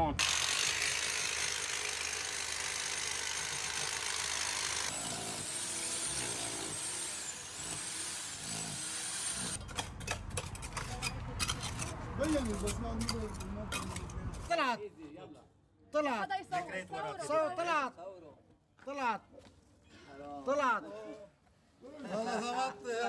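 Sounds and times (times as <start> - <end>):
power tool breaking concrete: 0.2 - 10.5.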